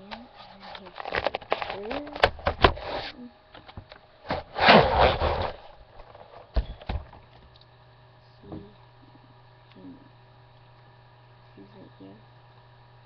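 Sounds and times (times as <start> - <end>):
webcam handling rustle: 0.7 - 2.3.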